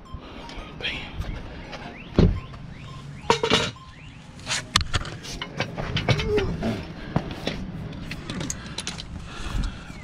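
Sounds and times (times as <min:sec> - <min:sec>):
metal tools clinking on concrete: 0:03.3 - 0:03.9.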